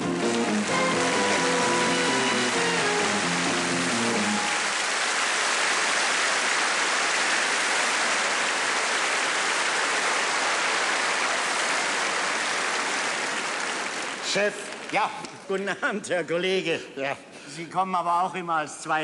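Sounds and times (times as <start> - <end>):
band music: 0.0 - 4.6
audience applauding: 0.0 - 15.4.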